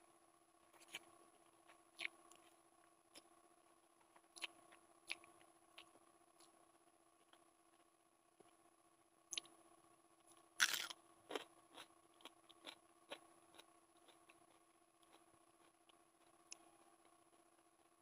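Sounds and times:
chewing crunches and clicks: 0.8s - 3.3s, 4.0s - 6.6s, 9.3s - 9.6s, 10.2s - 18.0s
loud crunchy bite: 10.6s - 11.9s.

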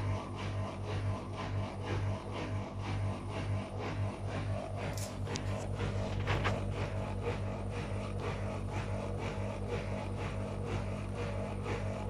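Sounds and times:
washing machine motor hum: 0.0s - 12.0s.

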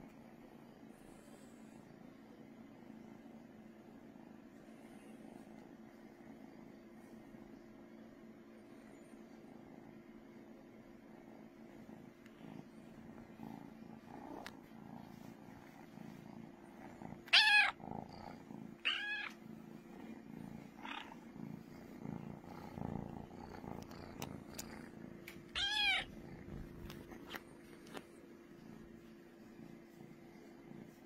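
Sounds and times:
kitten purring: 8.3s - 31.0s
kitten meowing: 17.3s - 17.8s, 18.8s - 19.4s, 25.5s - 26.1s.

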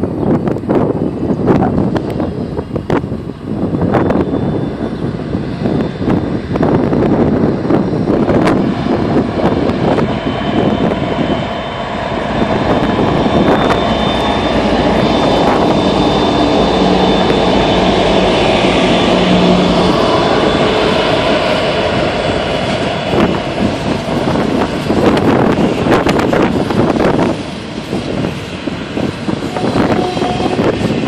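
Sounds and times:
diesel locomotive engine drone: 0.0s - 31.0s
thin high whine: 9.6s - 31.0s.

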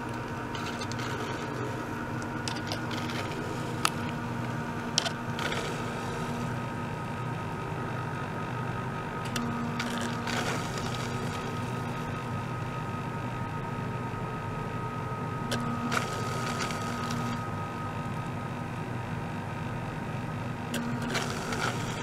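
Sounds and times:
liquid and air flowing through tubing: 0.0s - 6.7s
circulation pump humming: 0.0s - 22.0s.

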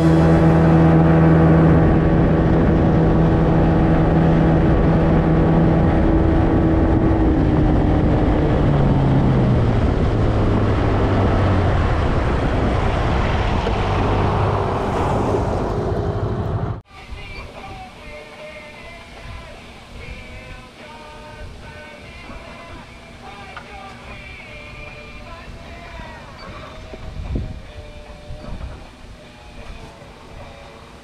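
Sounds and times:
outboard motor running: 0.0s - 14.6s
water noise: 0.0s - 16.8s.

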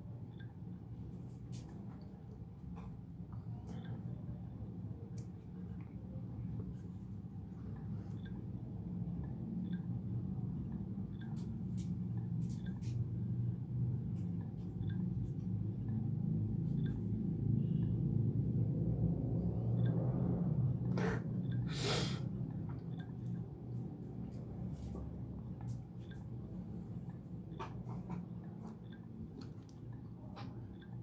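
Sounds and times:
low room hum: 0.0s - 31.0s
faint ticks: 10.7s - 13.0s.

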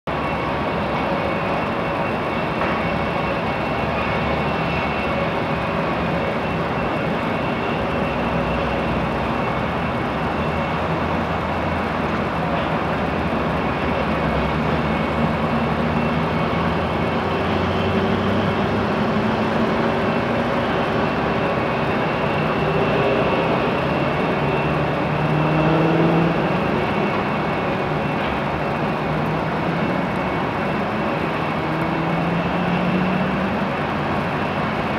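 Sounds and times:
jet engines rumbling: 0.1s - 34.9s.

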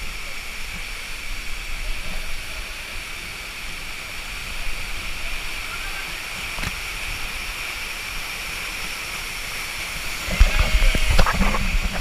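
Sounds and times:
waterfall rushing: 0.0s - 12.0s
wind buffeting the microphone: 0.0s - 12.0s.

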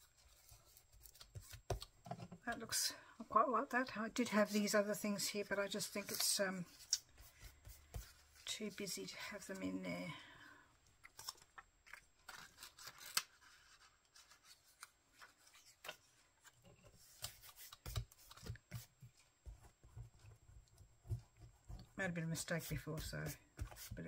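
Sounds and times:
hand pressing paper with dull thumps: 0.4s - 2.7s, 6.0s - 8.6s, 17.1s - 24.0s
paper rustling and crackling: 11.0s - 19.3s.

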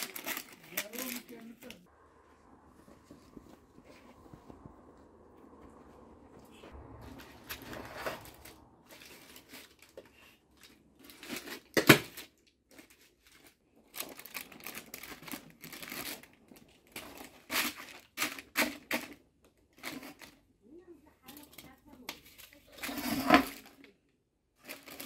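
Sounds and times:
baking paper rustling and crinkling: 0.0s - 1.9s, 7.1s - 20.5s, 24.6s - 25.0s.

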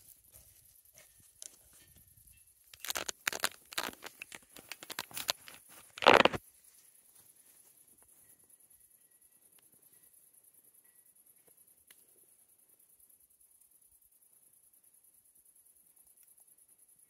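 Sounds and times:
rustling and crackling handling noise: 2.7s - 7.6s.

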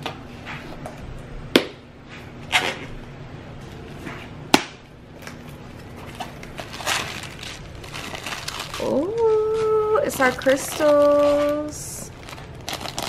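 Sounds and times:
bubble wrap rustling: 5.2s - 13.0s.

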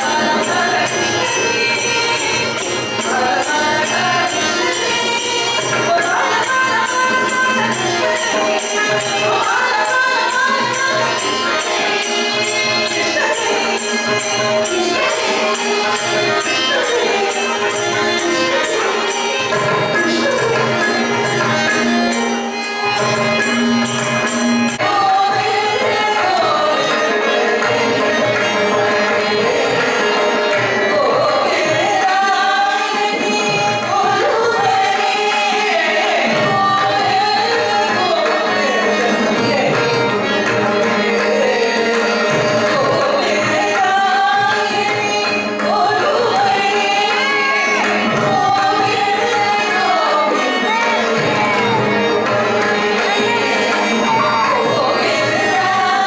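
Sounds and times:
women singing devotional song: 0.0s - 23.4s, 24.1s - 56.0s
fast percussion beat: 0.0s - 26.6s, 50.6s - 56.0s.

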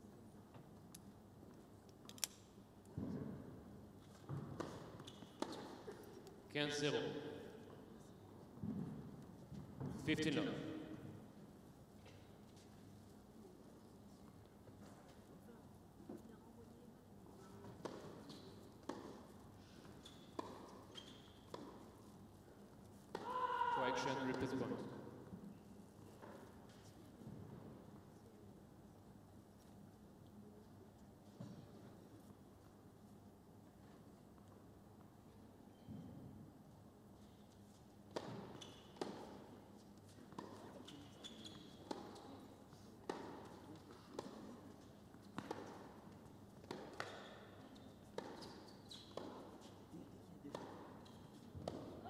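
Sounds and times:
tennis ball racket hits: 4.3s - 5.8s, 17.6s - 19.3s, 23.1s - 25.0s, 38.1s - 39.5s, 43.0s - 44.5s, 45.2s - 47.6s, 50.5s - 52.0s
tennis ball strikes: 17.8s - 18.2s, 43.0s - 43.5s, 46.6s - 47.3s, 50.5s - 50.9s, 51.6s - 52.0s
shoe squeaks on court: 19.9s - 21.5s, 38.5s - 39.0s, 40.8s - 41.9s, 47.1s - 49.5s.

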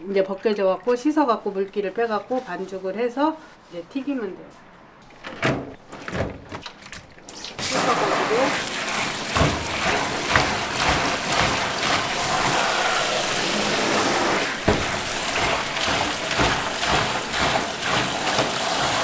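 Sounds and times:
splashes and knocks: 5.4s - 12.8s, 14.6s - 19.0s
tap water spraying into bowl: 7.4s - 19.0s.

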